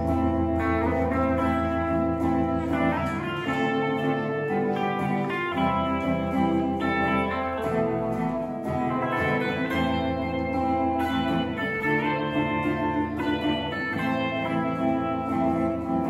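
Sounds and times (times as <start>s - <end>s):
accompanying guitar: 0.0s - 16.0s
electric guitar melody: 0.0s - 16.0s.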